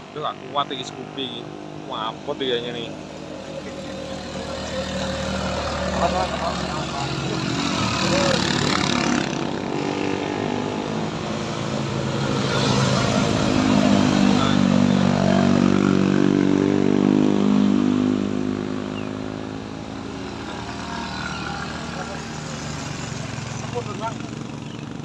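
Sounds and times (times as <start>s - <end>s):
motorcycle engines labouring uphill: 0.0s - 25.0s.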